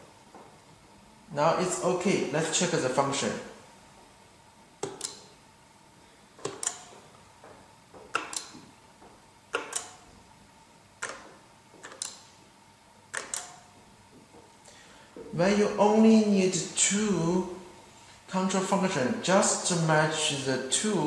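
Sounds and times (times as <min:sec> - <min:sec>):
light switch clicks: 0:09.5 - 0:10.0, 0:13.1 - 0:13.6.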